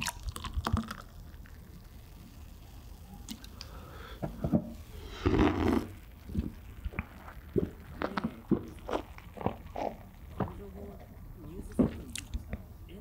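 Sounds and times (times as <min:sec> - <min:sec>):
person biting and chewing: 0:00.0 - 0:01.6, 0:05.0 - 0:10.6.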